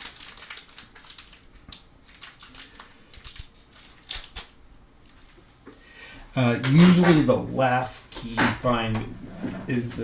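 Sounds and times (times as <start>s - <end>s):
plastic packaging crinkling: 0.0s - 5.3s.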